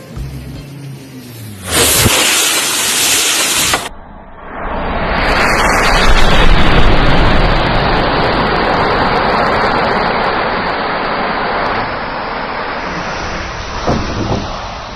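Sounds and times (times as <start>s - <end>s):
rush of burning fire: 1.2s - 14.9s.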